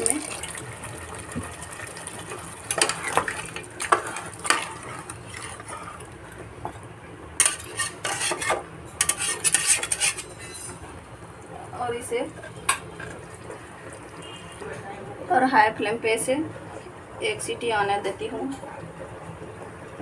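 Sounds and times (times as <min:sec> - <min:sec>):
metal spatula scraping a pot: 0:02.7 - 0:06.0, 0:07.4 - 0:10.8.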